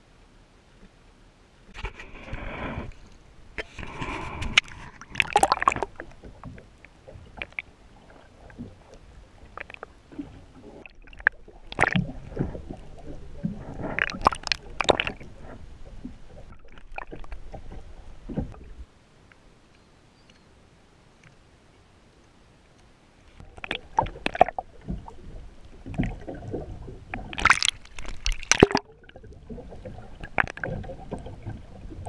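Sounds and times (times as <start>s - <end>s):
seawater sloshing and gurgling: 1.7s - 18.8s, 23.4s - 32.0s
sharp water splashes: 3.7s - 6.2s, 10.8s - 12.7s, 13.8s - 15.3s, 23.5s - 25.2s, 25.8s - 31.6s.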